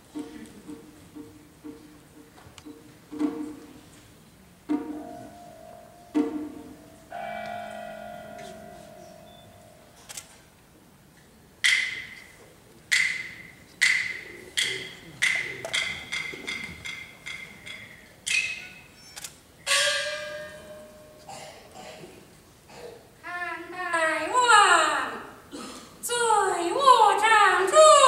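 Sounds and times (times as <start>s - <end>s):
opera percussion strikes: 0.1s - 3.9s, 4.6s - 10.1s, 11.6s - 19.0s, 19.7s - 21.9s.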